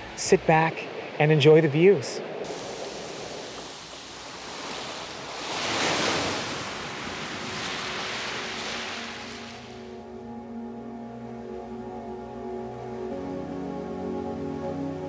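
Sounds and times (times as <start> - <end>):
surf washing up gravel beach: 2.4 - 10.0.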